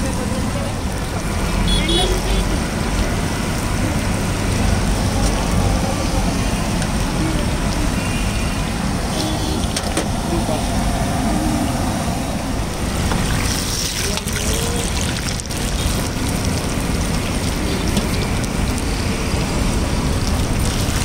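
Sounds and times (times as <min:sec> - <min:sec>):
oil sizzling and bubbling: 0:00.0 - 0:09.8, 0:12.4 - 0:21.0
low rumble: 0:10.1 - 0:14.2.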